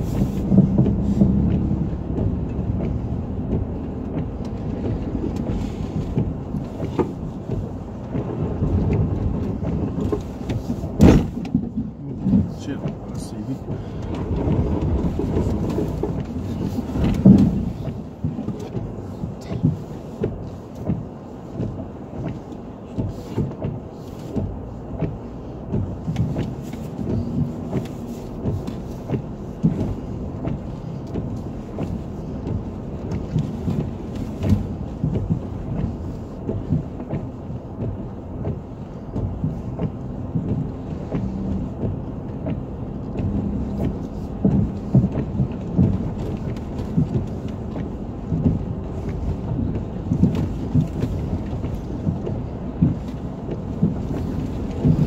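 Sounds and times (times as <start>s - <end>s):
engine and tyres rumbling: 0.0s - 55.0s
car body jolting knocks: 11.0s - 11.8s.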